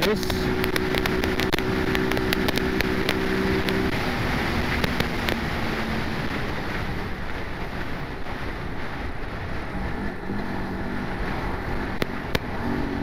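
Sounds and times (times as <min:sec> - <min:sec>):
motorcycle engine cruising: 0:00.0 - 0:13.0
wind noise on microphone: 0:00.0 - 0:13.0.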